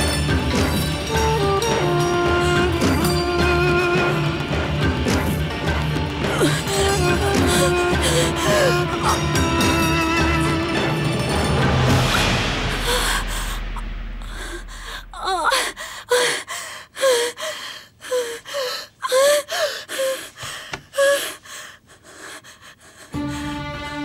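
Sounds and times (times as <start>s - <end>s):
dramatic music hit: 0.0s - 16.1s
woman gasping and whimpering: 6.2s - 9.4s, 12.7s - 23.7s.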